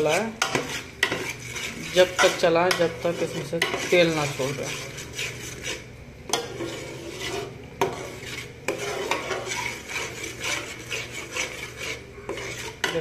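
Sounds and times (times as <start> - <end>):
metal ladle scraping a pot: 0.0 - 13.0.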